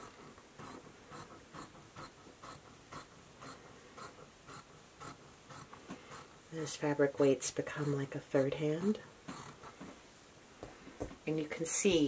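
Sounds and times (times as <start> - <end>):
shears snipping fabric: 0.0 - 9.8.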